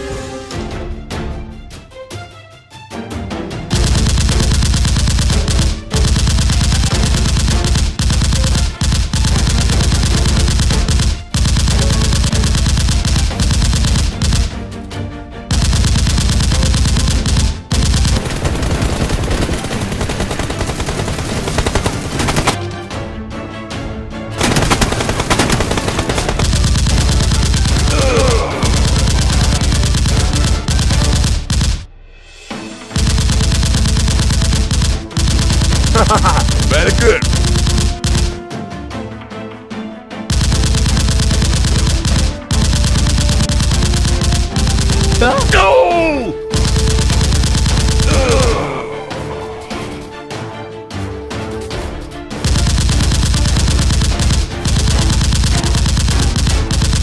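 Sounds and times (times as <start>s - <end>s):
automatic gunfire: 3.7s - 14.7s, 15.5s - 22.6s, 24.4s - 31.9s, 32.9s - 38.5s, 40.3s - 50.1s, 52.4s - 57.0s.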